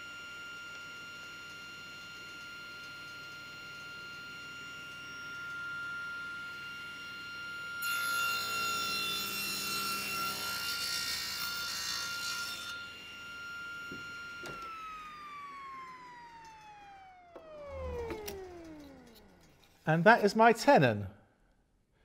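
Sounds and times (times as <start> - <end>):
table saw whining: 0.0 - 20.1
saw blade spinning down: 7.8 - 20.1.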